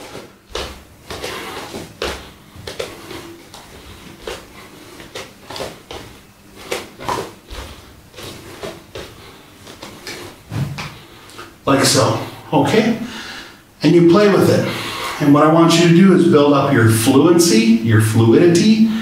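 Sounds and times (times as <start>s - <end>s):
bare feet on wooden floor: 0.0s - 12.4s.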